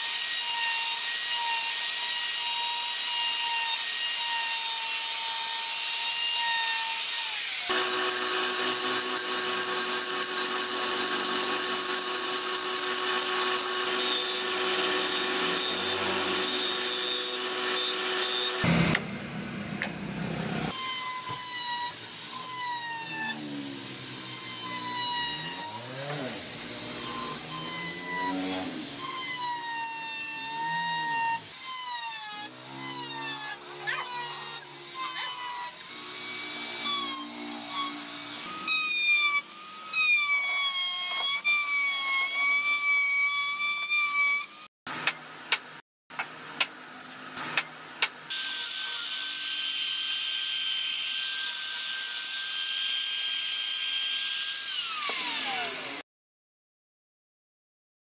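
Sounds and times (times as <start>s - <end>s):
rotary tool carving wood: 0.0s - 19.1s, 19.8s - 45.7s, 47.4s - 56.0s
wood lathe with chisel cutting: 0.0s - 45.2s, 48.3s - 56.0s
trim router high whine: 7.7s - 29.5s.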